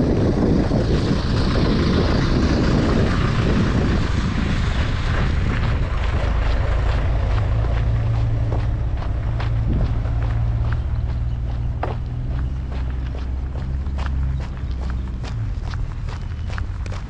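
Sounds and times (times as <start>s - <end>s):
vehicle engine hum: 0.0s - 17.0s
wind rumbling on microphone: 0.0s - 17.0s.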